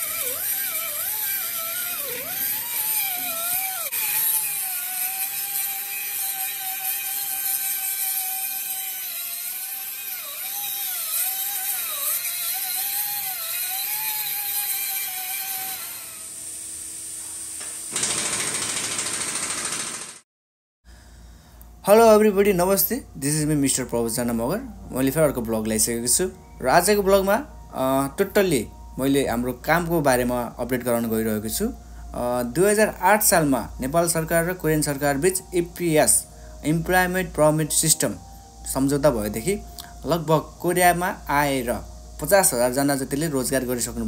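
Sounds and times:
power tool whining: 0:00.0 - 0:20.2
loud steady hiss: 0:21.0 - 0:44.0.

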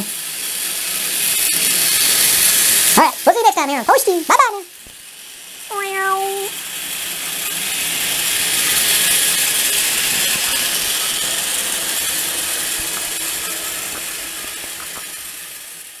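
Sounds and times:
toy train motors whirring: 0:00.0 - 0:05.7, 0:06.6 - 0:16.0.

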